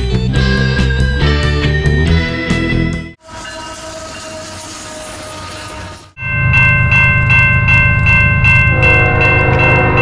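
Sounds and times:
crossing bell ringing: 3.2 - 5.0, 6.2 - 10.0
lower-pitched sound: 8.6 - 10.0.

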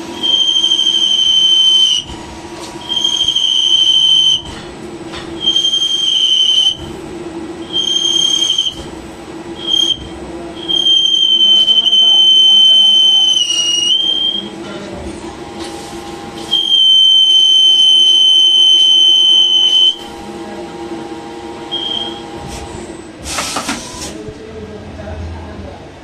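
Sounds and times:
machine humming: 0.0 - 23.2
short hissing burst: 23.2 - 24.1.

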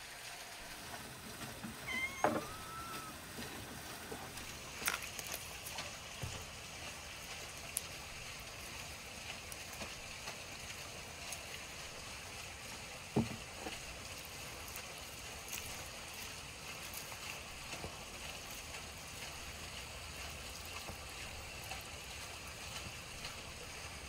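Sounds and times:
knock on cutting board: 2.2 - 2.6.

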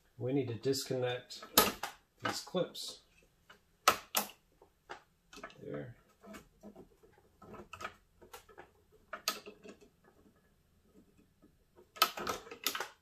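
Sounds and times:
plastic clips clicking and rattling: 7.4 - 10.0, 11.8 - 13.0.

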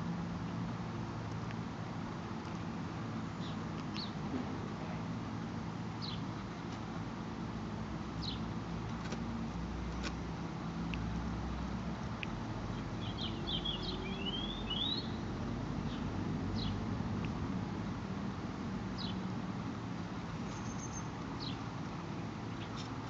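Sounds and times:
low outdoor rumble: 0.0 - 23.0
small birds chirping: 2.2 - 6.9, 8.2 - 9.2, 12.0 - 17.4, 18.9 - 23.0.

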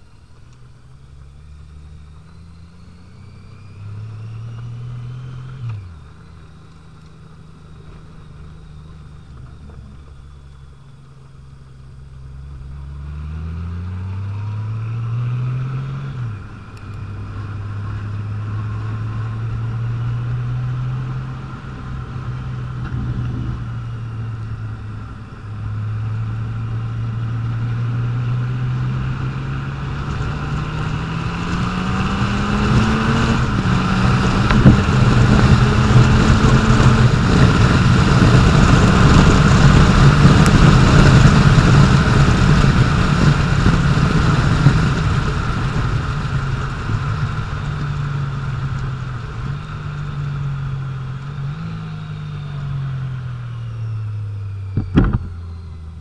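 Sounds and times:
motorcycle engine accelerating: 0.0 - 56.0
wind rushing over microphone: 18.7 - 26.5, 27.9 - 50.8.

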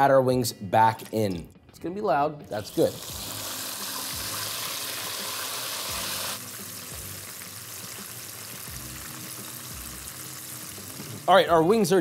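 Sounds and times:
chicken deep-frying in oil: 2.8 - 11.3.

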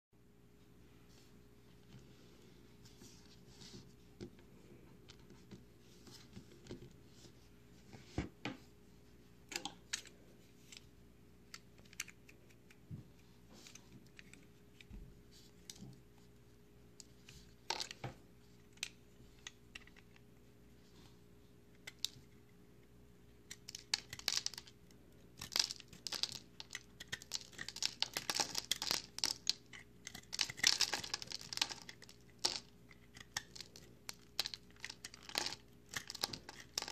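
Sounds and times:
soap bars clicking and crackling: 21.8 - 36.9
knife shaving dry soap: 25.4 - 36.9.

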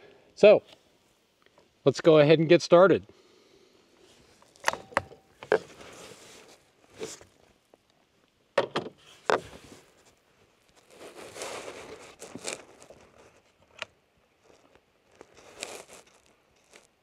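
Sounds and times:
soft rustling: 4.0 - 7.9, 9.0 - 13.8, 14.4 - 17.0
eyeglasses set on table: 4.6 - 5.8.

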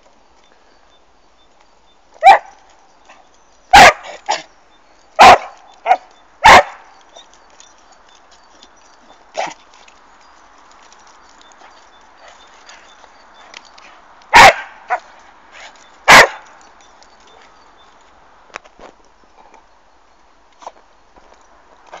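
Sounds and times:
dog barking excitedly: 2.2 - 2.5, 3.7 - 4.4, 5.2 - 6.8, 14.3 - 15.0, 16.1 - 16.4.

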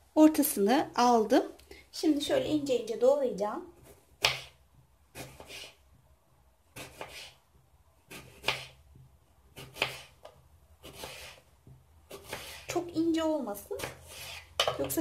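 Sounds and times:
knife slicing apple: 3.8 - 5.9, 6.7 - 7.4, 8.0 - 12.8, 13.8 - 15.0.

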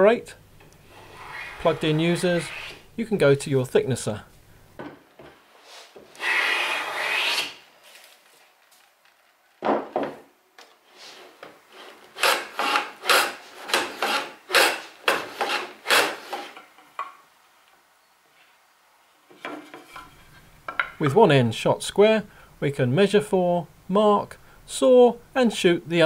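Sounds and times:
hand plane long shaving: 0.9 - 2.8, 6.2 - 7.6, 11.0 - 16.6
hand plane short strokes: 0.9 - 2.8, 6.2 - 7.6, 11.0 - 16.6.

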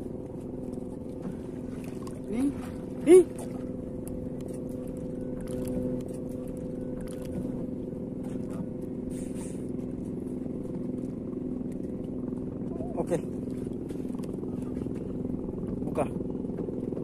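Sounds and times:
boat engine humming: 0.0 - 17.0
fish splashing at water surface: 4.4 - 7.7.

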